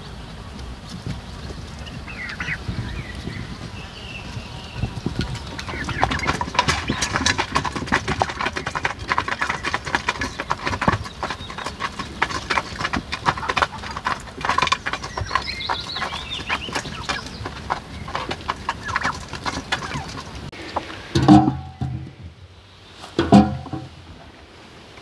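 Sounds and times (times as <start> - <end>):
poultry calling: 1.4 - 21.9
clicks and knocks: 23.2 - 24.0.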